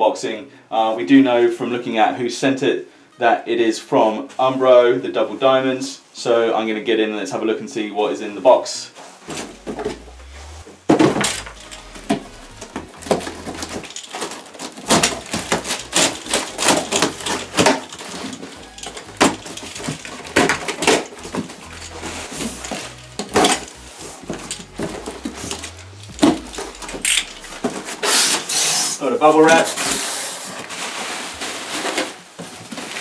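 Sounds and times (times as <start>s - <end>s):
packing tape ripping off cardboard: 13.2s - 21.9s.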